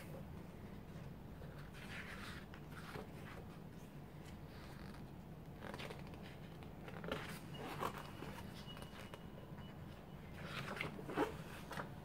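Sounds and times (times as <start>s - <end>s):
paper pages rustling and sliding: 1.4s - 5.0s, 10.3s - 12.0s.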